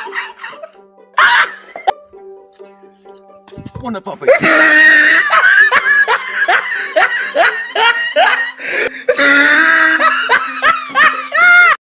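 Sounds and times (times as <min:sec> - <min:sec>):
person laughing in whoops: 0:00.0 - 0:01.9, 0:04.3 - 0:11.8.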